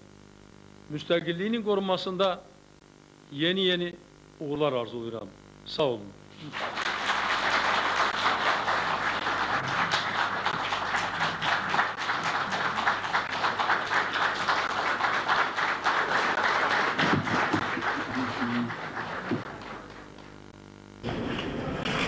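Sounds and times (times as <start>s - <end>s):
large audience applauding: 6.4s - 20.5s.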